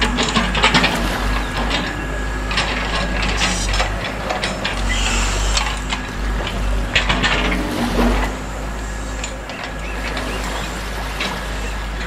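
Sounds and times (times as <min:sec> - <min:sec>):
motors whirring: 0:00.0 - 0:12.0.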